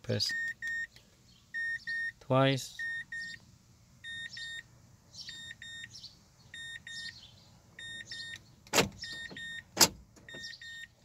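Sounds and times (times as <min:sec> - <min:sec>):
car warning chime beeping: 0:00.2 - 0:07.2, 0:07.8 - 0:11.0
door locks clunking: 0:08.6 - 0:10.6.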